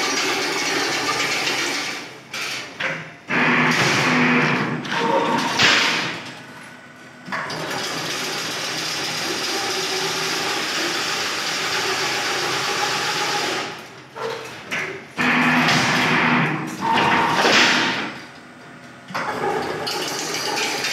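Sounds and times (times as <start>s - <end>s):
machine whirring: 0.0s - 20.9s
loud rough noise: 3.3s - 6.2s, 15.2s - 18.2s.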